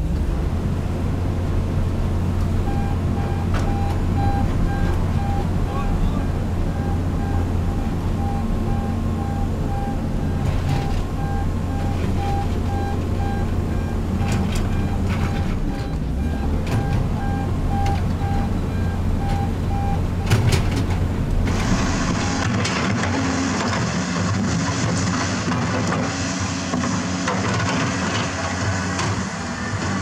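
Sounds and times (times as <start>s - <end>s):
diesel engine running: 0.0s - 30.0s
warning beeper short beeps: 2.7s - 20.0s.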